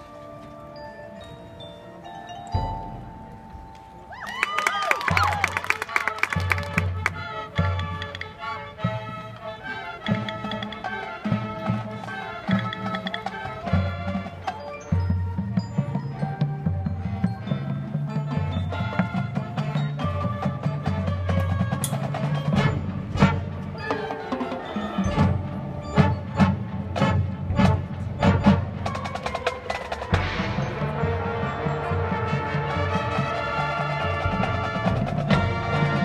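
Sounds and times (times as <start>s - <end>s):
mallet percussion: 0.0s - 36.0s
brass chords: 17.0s - 36.0s
sharp percussion hits: 21.6s - 33.1s.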